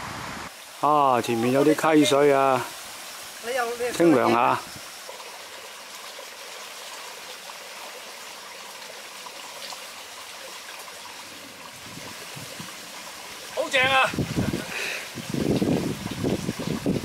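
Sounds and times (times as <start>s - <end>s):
stream trickling over stones: 0.5s - 17.0s.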